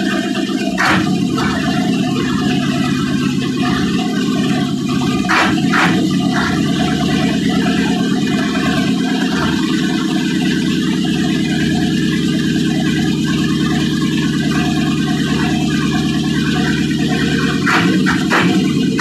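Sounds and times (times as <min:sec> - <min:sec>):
diesel engine idling: 0:00.0 - 0:19.0.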